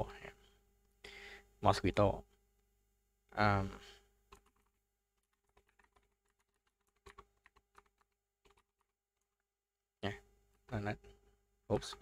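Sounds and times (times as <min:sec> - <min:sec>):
keyboard typing: 0:04.3 - 0:09.4.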